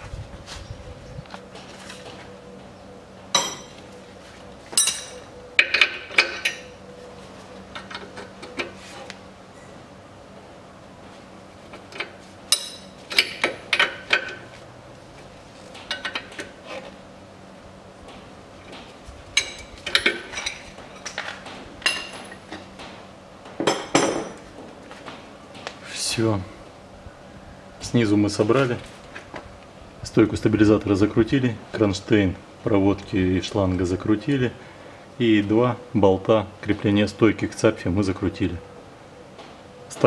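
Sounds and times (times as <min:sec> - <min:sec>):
metal tools clinking on bolts: 0:04.8 - 0:06.7, 0:12.0 - 0:14.5, 0:19.4 - 0:22.6.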